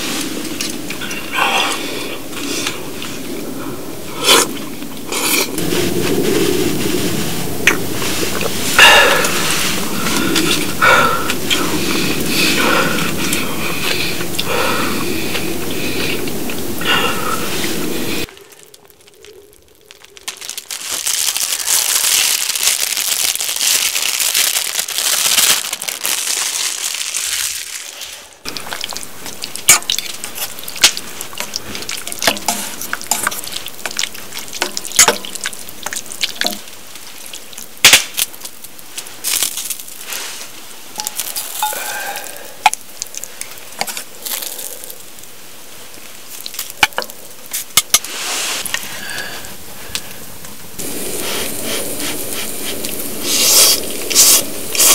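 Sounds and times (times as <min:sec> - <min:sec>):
noodles simmering: 0:00.0 - 0:54.9
broth boiling hard: 0:28.4 - 0:49.5, 0:50.7 - 0:54.9.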